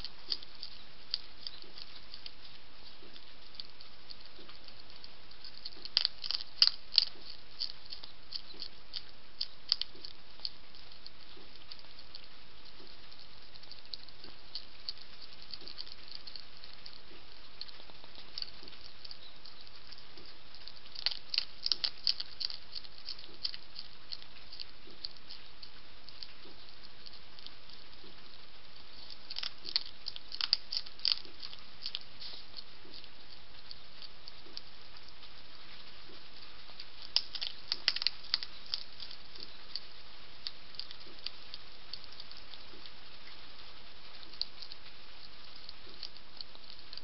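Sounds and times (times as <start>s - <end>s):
hedgehog crunching biscuits: 0.0s - 47.0s
steady hiss: 0.0s - 47.0s.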